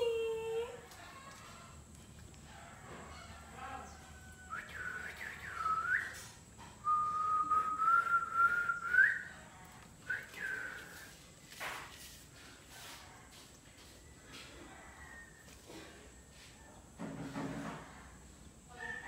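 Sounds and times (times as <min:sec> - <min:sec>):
person whistling: 0:06.8 - 0:09.2.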